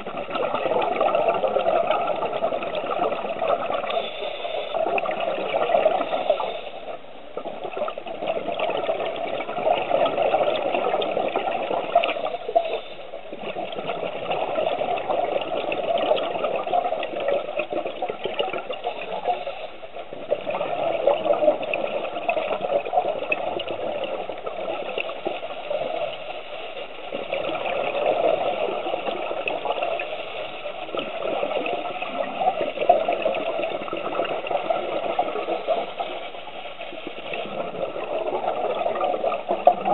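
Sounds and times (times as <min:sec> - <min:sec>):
exhaled air bubbling: 0:00.0 - 0:39.9
scuba regulator breathing: 0:03.9 - 0:05.0, 0:05.9 - 0:07.0.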